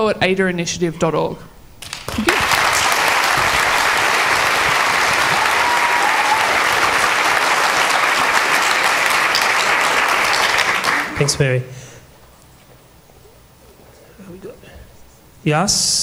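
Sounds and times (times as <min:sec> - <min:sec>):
audience applause: 0:01.8 - 0:11.5.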